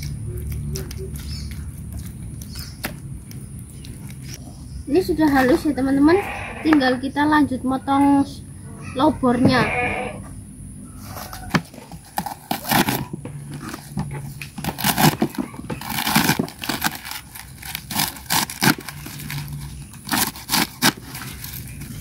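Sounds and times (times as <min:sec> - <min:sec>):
knife slicing crisp greens: 0:14.6 - 0:22.0.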